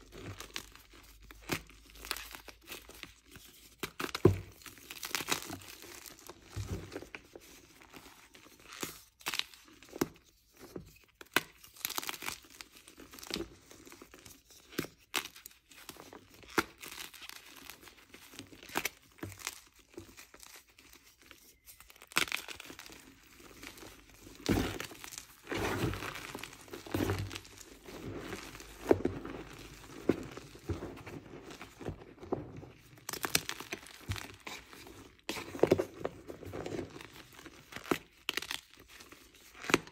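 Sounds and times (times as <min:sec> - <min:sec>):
chalk blocks crunching: 0:16.7 - 0:39.8.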